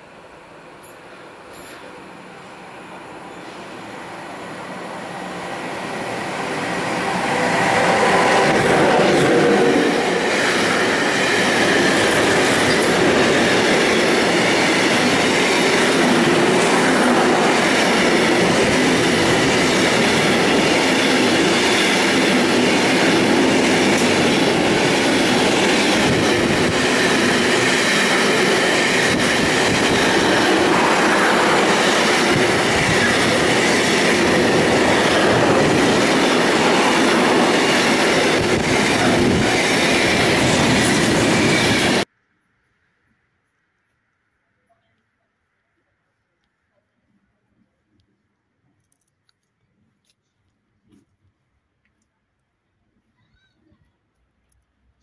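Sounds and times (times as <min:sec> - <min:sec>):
freight train rushing past: 0:00.0 - 0:42.1.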